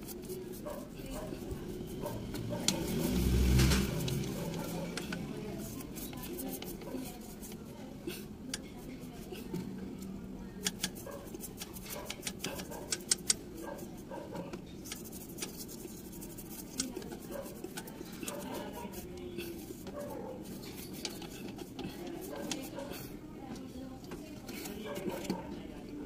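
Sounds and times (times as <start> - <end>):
brush scrubbing metal: 0.0 - 23.2.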